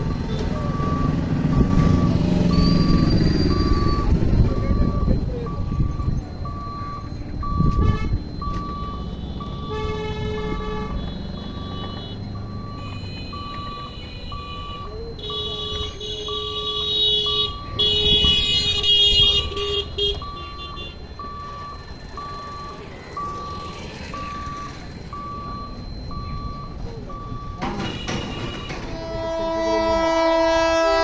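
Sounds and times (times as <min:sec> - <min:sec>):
level crossing electronic beeping: 0:00.0 - 0:09.9, 0:11.0 - 0:15.5, 0:20.2 - 0:27.8
road traffic: 0:00.0 - 0:31.0
vehicle horn honking: 0:07.6 - 0:08.2, 0:09.2 - 0:12.2, 0:12.8 - 0:21.0, 0:27.6 - 0:31.0.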